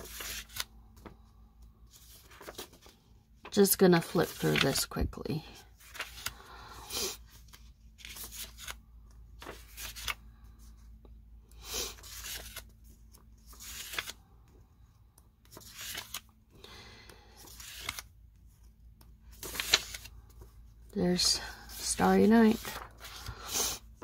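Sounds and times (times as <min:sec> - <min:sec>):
paper sheets swishing: 0:04.2 - 0:04.8, 0:19.4 - 0:20.1, 0:21.1 - 0:23.8.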